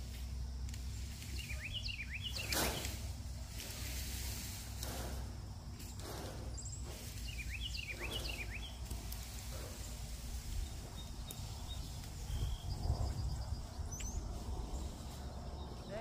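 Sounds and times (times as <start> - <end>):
brush rustling as dragged: 0.0 - 16.0
steady low rumble: 0.0 - 16.0
bird chirping: 0.9 - 3.0, 5.8 - 16.0.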